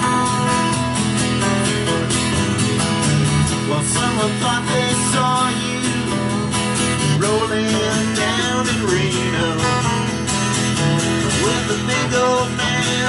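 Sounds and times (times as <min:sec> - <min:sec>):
acoustic guitars strummed: 0:00.0 - 0:13.0
man singing: 0:03.5 - 0:06.4, 0:07.0 - 0:10.2, 0:11.1 - 0:13.0.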